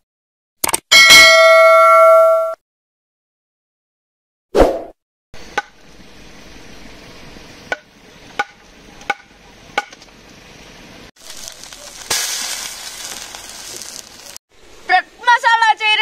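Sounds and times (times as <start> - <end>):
loud steady hiss: 10.3 - 16.0.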